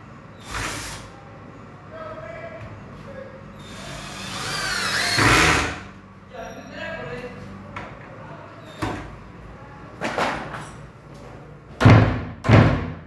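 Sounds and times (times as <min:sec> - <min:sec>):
cordless drill whirring: 0:03.6 - 0:05.8.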